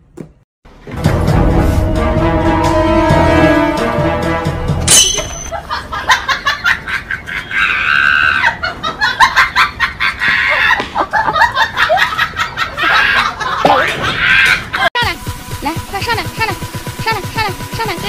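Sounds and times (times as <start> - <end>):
people laughing and snickering: 5.5 - 14.9.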